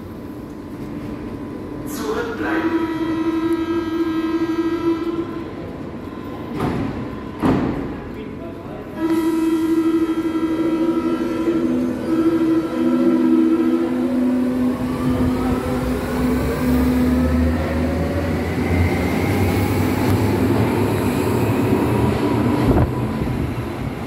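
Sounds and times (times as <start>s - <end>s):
train traction whine rising: 9.1s - 24.0s.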